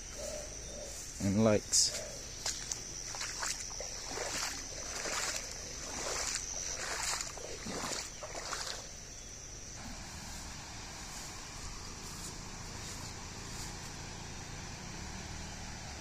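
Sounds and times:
high-pitched insect drone: 0.0s - 16.0s
floodwater surging: 2.4s - 9.1s.

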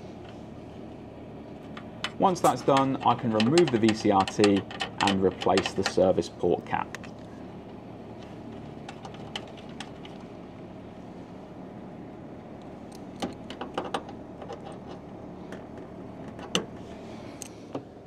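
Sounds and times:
steady low hum: 0.0s - 18.0s
metal cap clicking and tapping: 2.0s - 6.0s.

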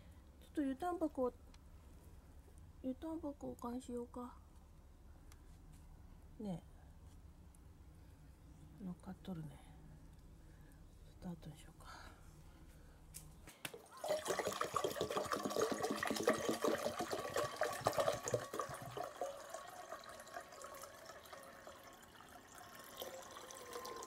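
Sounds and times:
water pouring into a bowl: 13.8s - 24.0s.

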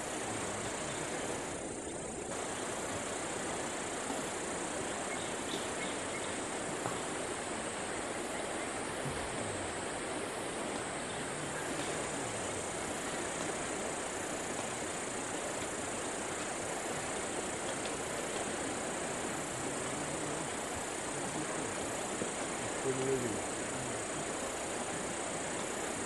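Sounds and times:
rushing hiss: 0.0s - 26.0s.

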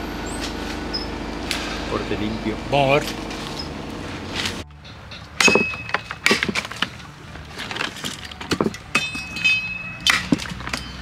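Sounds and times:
wood cracking and snapping: 5.5s - 8.9s.

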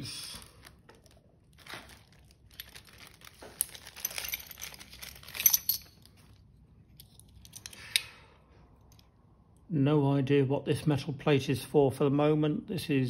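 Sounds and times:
plastic bags crinkling: 0.0s - 6.4s
metal parts clicking and clinking: 2.5s - 8.2s.

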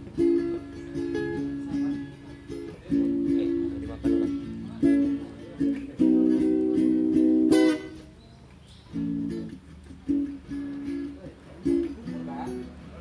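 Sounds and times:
strummed string chords: 0.0s - 8.1s.

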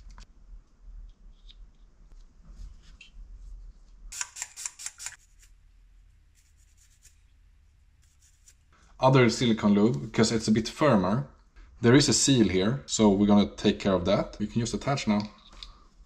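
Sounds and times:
sharp clicks: 4.1s - 5.2s.

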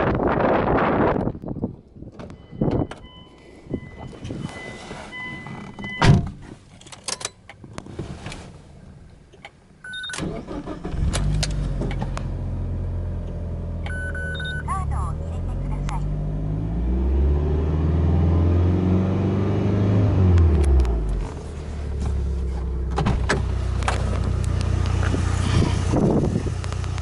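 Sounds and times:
car engine starting and idling: 2.0s - 27.0s
car door shutting: 3.9s - 6.6s, 20.5s - 25.3s.

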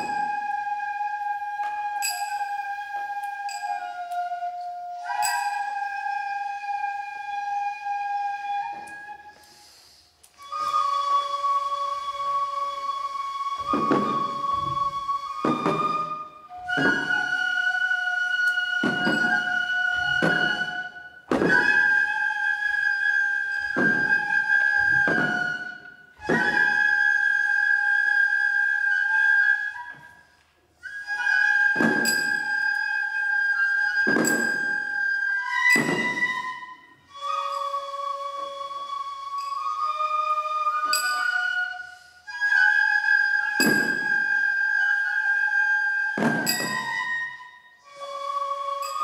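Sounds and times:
bamboo flutes playing slow melody: 0.0s - 49.0s
drum strokes: 13.6s - 22.1s, 23.2s - 26.9s, 31.5s - 32.8s, 33.8s - 36.8s, 46.2s - 47.2s.

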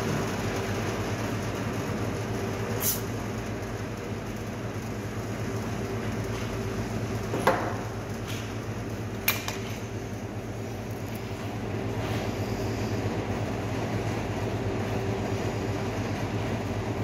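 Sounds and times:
machine hum: 0.0s - 17.0s.

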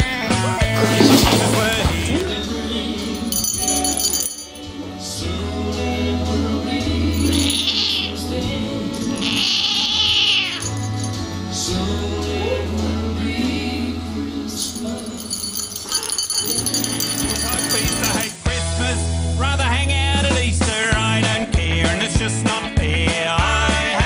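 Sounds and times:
cat crying out: 7.6s - 8.3s, 9.0s - 10.8s
background music with bass: 16.6s - 24.0s.

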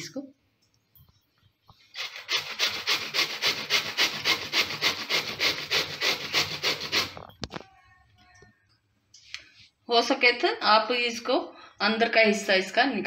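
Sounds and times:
gourd grated on metal grater: 1.9s - 7.5s.

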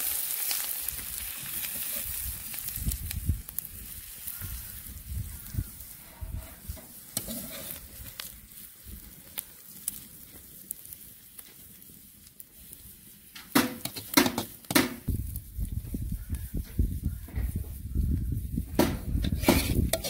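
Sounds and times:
onions sizzling: 0.0s - 20.0s
spatula scraping and tapping a wok: 6.1s - 7.9s, 13.4s - 15.1s, 18.8s - 20.0s.

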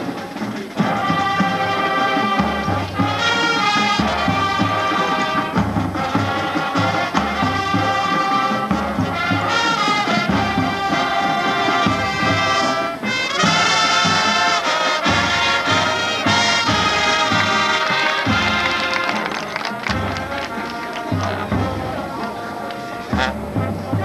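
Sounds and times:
marching band playing: 0.0s - 24.0s.

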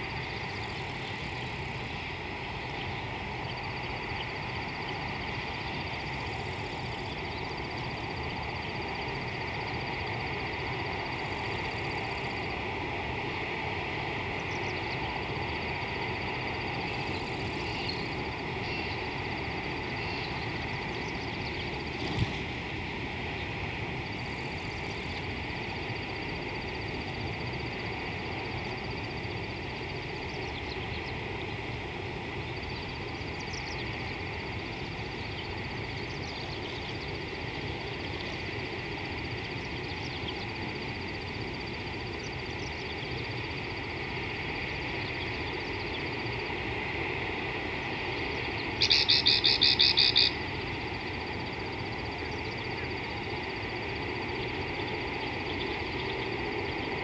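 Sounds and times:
faint bird chirps: 16.8s - 19.1s, 19.8s - 21.9s, 48.4s - 50.4s.

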